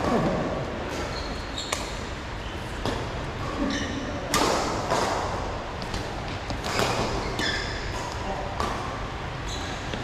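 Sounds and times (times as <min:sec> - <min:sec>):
shoe squeaks on court floor: 0:01.0 - 0:02.0, 0:07.1 - 0:08.1, 0:09.4 - 0:10.0
racket hitting shuttlecock: 0:04.3 - 0:09.0.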